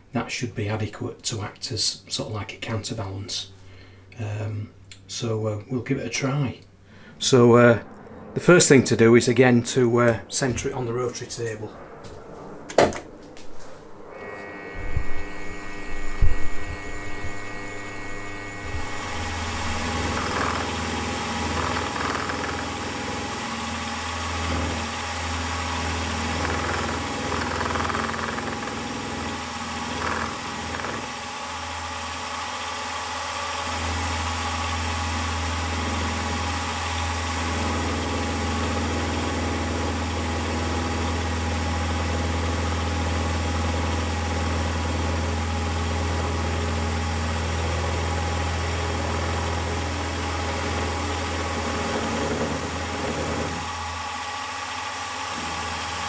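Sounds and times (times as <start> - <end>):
end mill cutting steel: 14.1 - 56.0
milling machine motor hum: 14.1 - 56.0.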